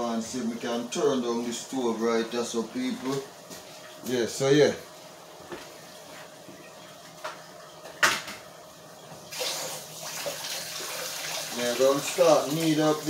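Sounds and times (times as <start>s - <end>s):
tap water running: 9.3s - 13.0s.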